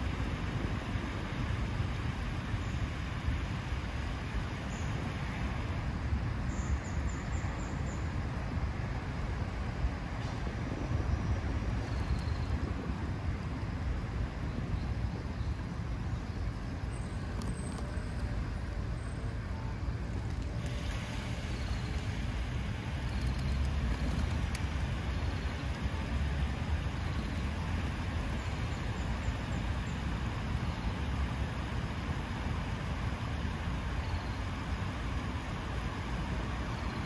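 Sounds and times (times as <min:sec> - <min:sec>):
low background rumble: 0:00.0 - 0:37.0
fountain water splashing into pool: 0:20.4 - 0:28.3.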